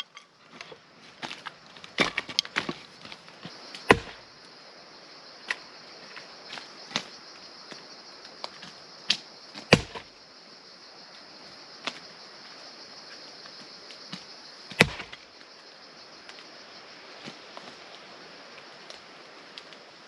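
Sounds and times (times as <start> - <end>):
axe chopping into wood: 2.0 - 2.8, 3.8 - 4.2, 9.1 - 10.1, 14.7 - 15.2.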